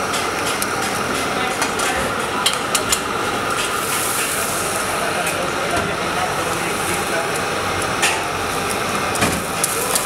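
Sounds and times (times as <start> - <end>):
hiss of frying: 3.5 - 5.4, 6.0 - 10.0.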